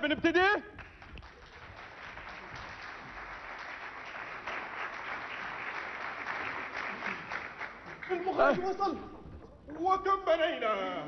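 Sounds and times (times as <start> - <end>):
audience applauding: 0.8 - 8.8.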